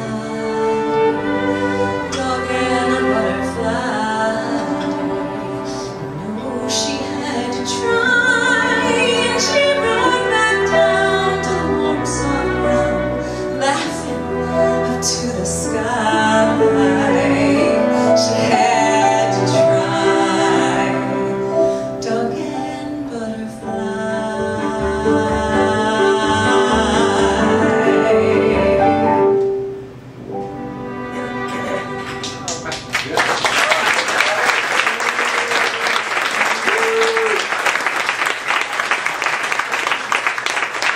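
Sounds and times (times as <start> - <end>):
woman singing: 0.0 - 29.3
acoustic band playing ballad: 0.0 - 32.9.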